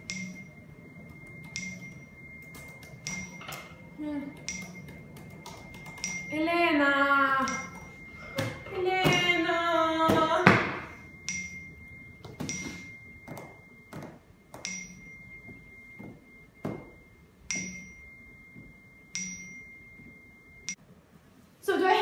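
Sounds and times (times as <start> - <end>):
thin high ringing tone: 0.0 - 20.9.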